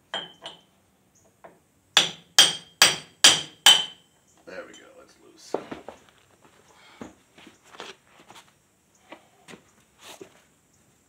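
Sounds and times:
hammer striking steel: 2.0s - 4.0s.

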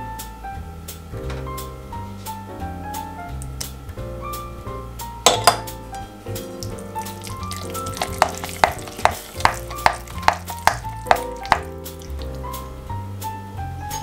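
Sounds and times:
spatula stirring wet batter: 6.4s - 12.7s.

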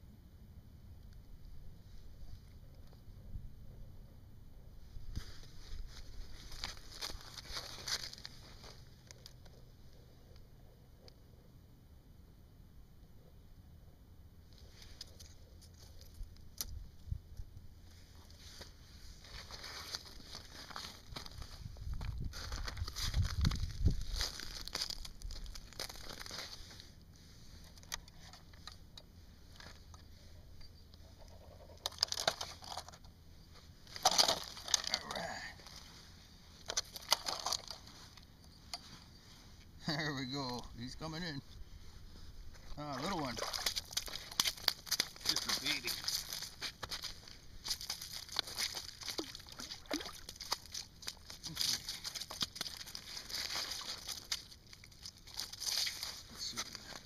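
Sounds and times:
scraping and crunching on ice: 5.8s - 9.2s, 18.4s - 26.9s, 31.8s - 33.0s, 33.8s - 36.0s, 36.6s - 38.2s, 42.8s - 57.0s
fish flopping on ice: 33.9s - 35.9s, 43.0s - 56.3s.

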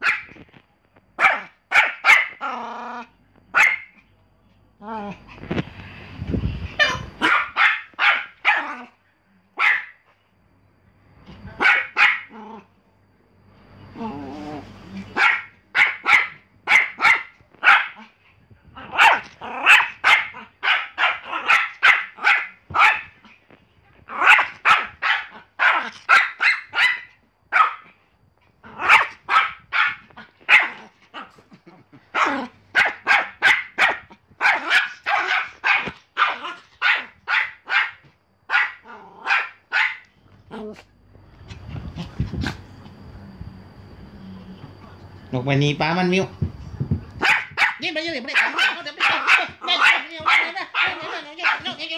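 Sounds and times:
small dog yapping: 0.0s - 0.4s, 1.2s - 2.6s, 3.5s - 4.0s, 6.8s - 9.0s, 9.6s - 10.0s, 11.5s - 12.4s, 14.0s - 18.2s, 18.8s - 23.4s, 24.1s - 27.9s, 28.6s - 40.9s, 47.2s - 51.9s.

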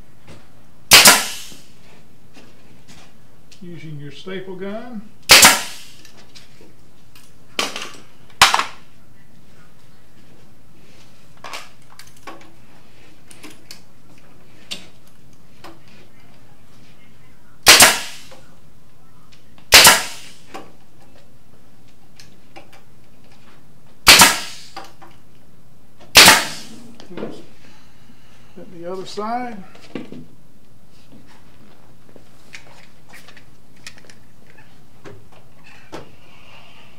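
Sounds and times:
pneumatic staple gun firing: 0.9s - 1.7s, 5.3s - 6.0s, 17.6s - 18.3s, 19.7s - 20.5s, 24.0s - 24.8s, 26.1s - 26.8s.

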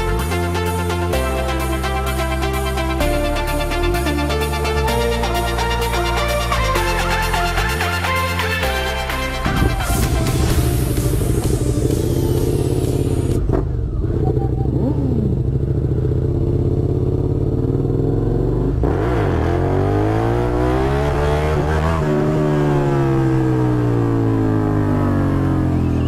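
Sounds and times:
motorcycle engine accelerating: 9.0s - 26.0s.

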